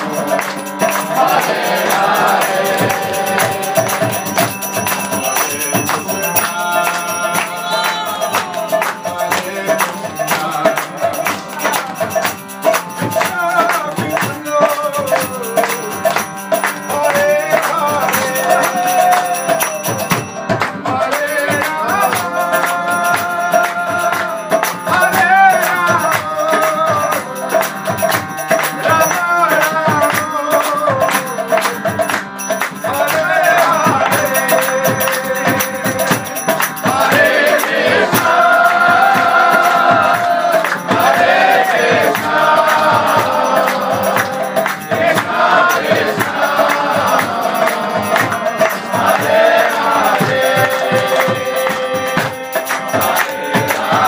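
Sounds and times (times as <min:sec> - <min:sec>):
voices joining in singing: 0:00.0 - 0:12.0, 0:32.9 - 0:54.0
hand percussion beat: 0:00.0 - 0:54.0
harmonium chords: 0:00.0 - 0:54.0
man singing devotional chant: 0:00.0 - 0:54.0.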